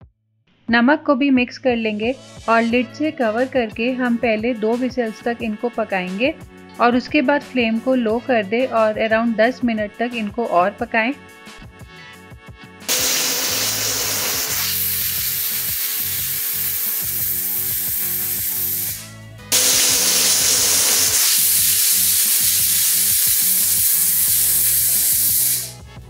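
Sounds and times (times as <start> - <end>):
pressure cooker whistling steam: 12.9 - 25.8.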